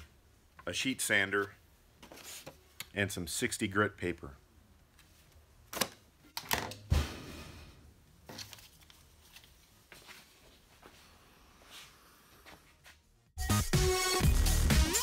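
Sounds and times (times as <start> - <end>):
sander set on steel table: 10.8 - 13.2.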